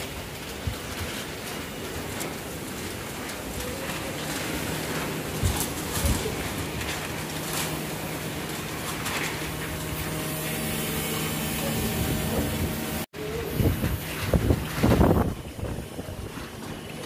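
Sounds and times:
strong wind blowing: 0:11.7 - 0:16.6.

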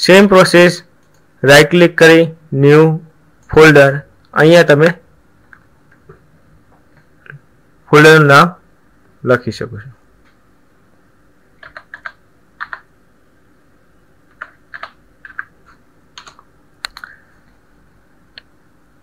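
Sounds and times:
computer keyboard typing: 0:11.6 - 0:12.9, 0:14.3 - 0:17.2.

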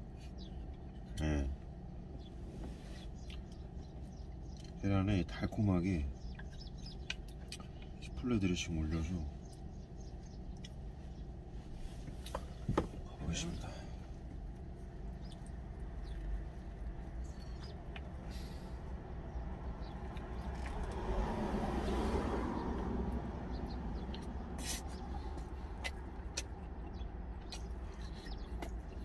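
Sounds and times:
low steady rumble: 0:00.0 - 0:29.0
vehicle passing by: 0:13.3 - 0:29.0.

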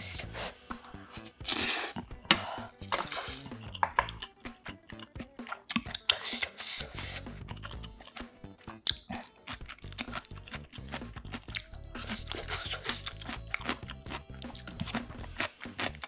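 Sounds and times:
chopsticks clicking against bowls: 0:02.0 - 0:06.8, 0:08.9 - 0:10.1
wet squishy chewing: 0:03.0 - 0:16.0.

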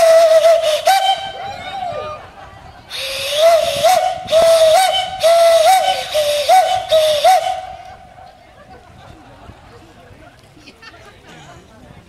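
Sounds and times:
steam locomotive whistle: 0:00.0 - 0:02.2, 0:02.9 - 0:08.0
steam hissing: 0:02.9 - 0:07.8.

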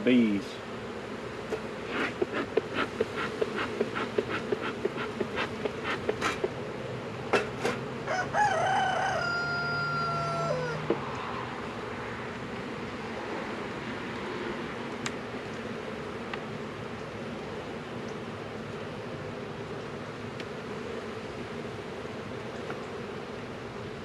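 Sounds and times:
bees humming: 0:00.0 - 0:14.0, 0:14.6 - 0:24.0
bellows puffing: 0:01.8 - 0:06.5
rooster crowing: 0:08.0 - 0:10.9.

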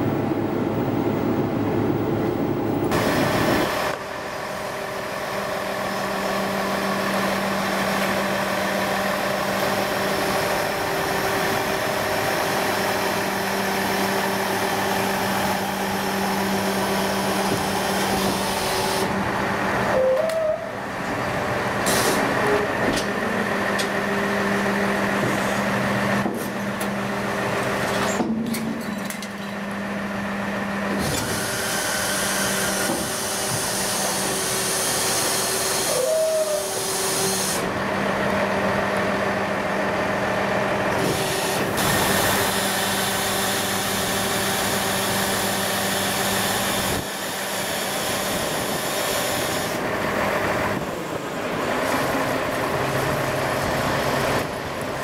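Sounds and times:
hydraulic system hum and hiss: 0:21.8 - 0:23.2, 0:30.9 - 0:37.7
short squeal: 0:35.4 - 0:37.6.

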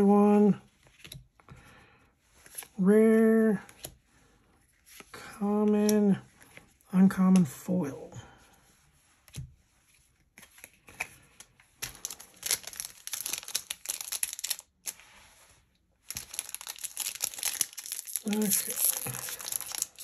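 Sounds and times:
plastic wrapper crinkling and tearing: 0:10.5 - 0:15.1, 0:16.0 - 0:20.0.

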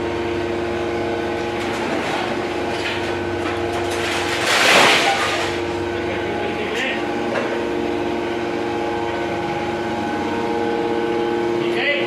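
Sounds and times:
hydraulic machine hum: 0:00.0 - 0:12.0.

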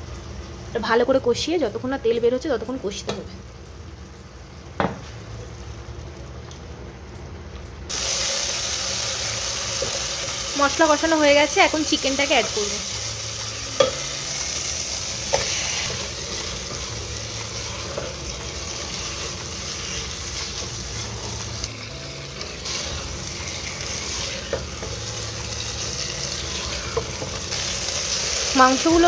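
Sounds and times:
chicken sizzling in oil: 0:07.9 - 0:29.0.

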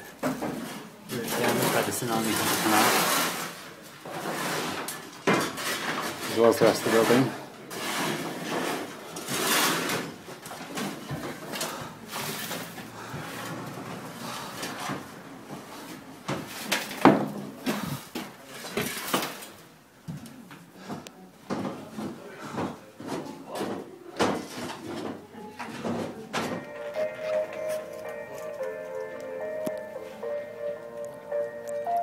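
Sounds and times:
hand tools on concrete floor: 0:00.0 - 0:15.0
debris knocking and scraping: 0:00.2 - 0:14.0.

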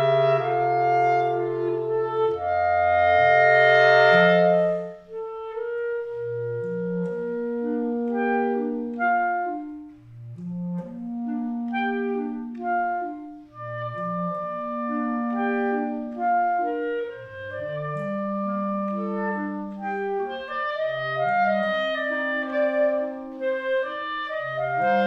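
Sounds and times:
clarinets playing: 0:00.0 - 0:06.6
bass clarinet low notes: 0:00.0 - 0:25.0.

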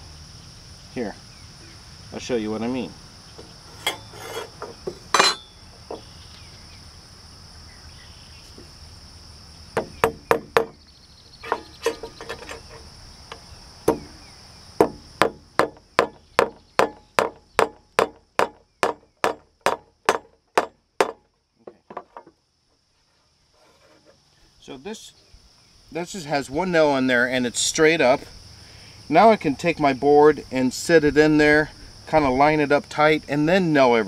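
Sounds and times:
hammer driving a nail: 0:09.8 - 0:10.8, 0:14.8 - 0:21.2.

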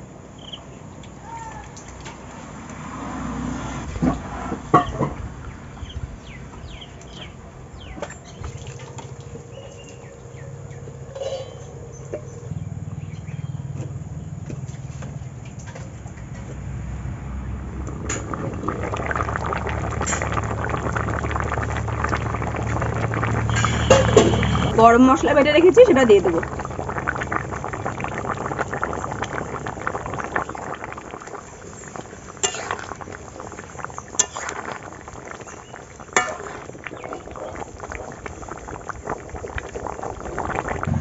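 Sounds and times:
curry bubbling: 0:04.0 - 0:12.6, 0:17.4 - 0:41.0
metal bowl and spatula clinks: 0:11.2 - 0:11.7.

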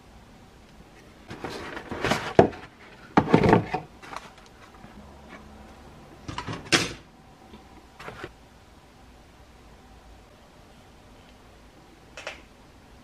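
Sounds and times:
plastic parts rustling and clattering: 0:01.2 - 0:04.9.

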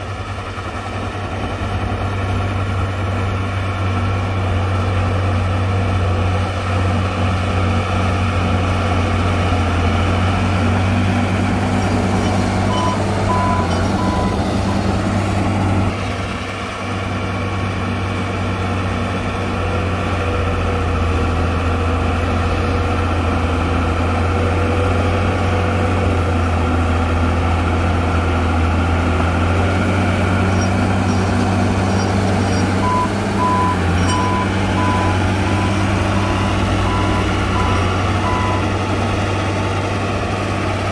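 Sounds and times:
heavy diesel machinery droning: 0:00.0 - 0:40.9
backup alarm beeping: 0:11.8 - 0:14.9, 0:30.6 - 0:38.8.

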